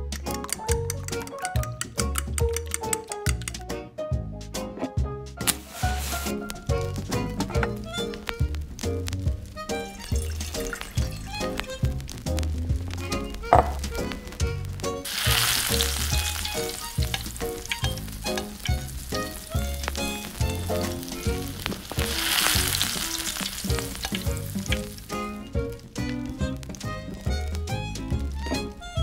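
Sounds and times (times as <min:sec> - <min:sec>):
background music with steady beat: 0:00.0 - 0:29.0
meat sizzling in hot oil: 0:05.5 - 0:28.5.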